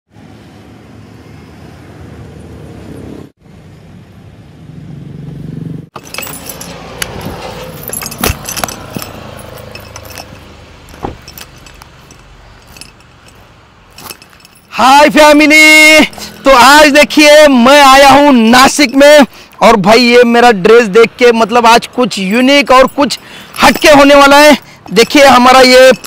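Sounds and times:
clicks and jingling: 6.0s - 15.4s, 18.6s - 19.5s, 22.4s - 26.0s
car door knocks: 11.0s - 11.3s.

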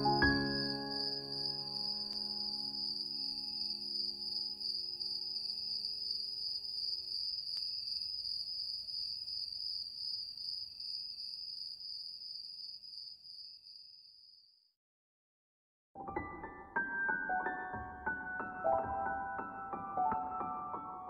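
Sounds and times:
held music chord: 0.0s - 2.9s
crickets chirring: 0.0s - 14.6s.

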